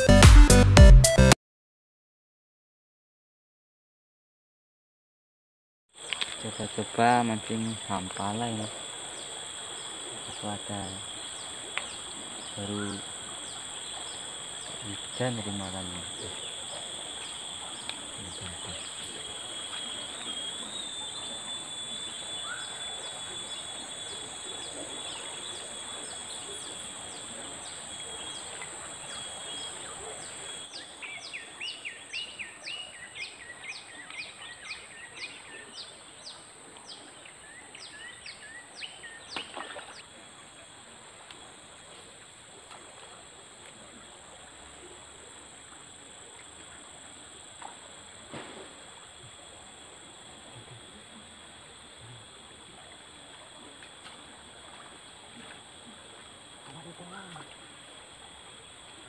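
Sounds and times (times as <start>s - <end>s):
insects shrilling: 6.0s - 33.8s, 38.8s - 59.0s
river flowing: 6.0s - 38.8s, 39.5s - 59.0s
bird whistling descending notes: 19.4s - 26.8s.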